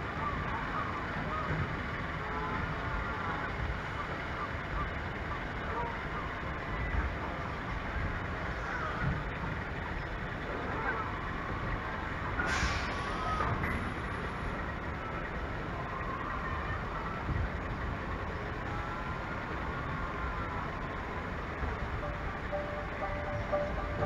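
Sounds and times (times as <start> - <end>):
brief hiss: 12.4 - 13.2.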